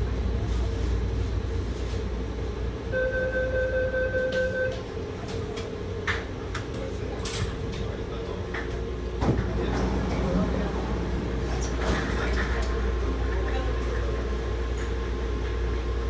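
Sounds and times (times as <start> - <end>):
metro train car rumble: 0.0 - 16.0.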